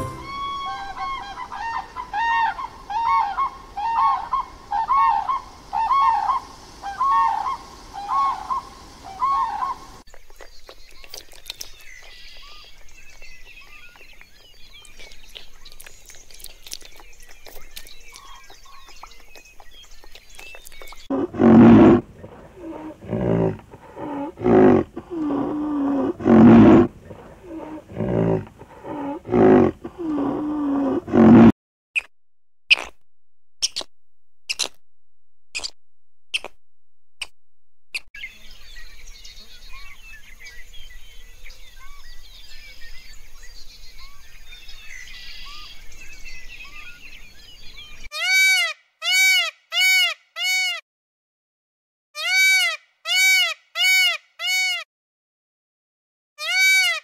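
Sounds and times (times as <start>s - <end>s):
cranes calling: 0.0s - 10.0s
large animal low calls: 21.1s - 31.5s.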